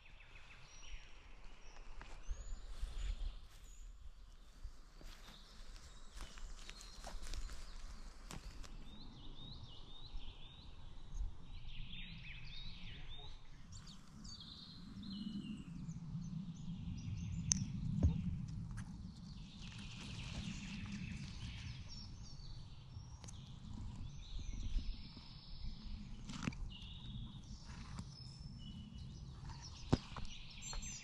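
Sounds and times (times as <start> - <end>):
songbirds singing: 0.0 - 31.0
footsteps on forest floor: 1.6 - 8.8.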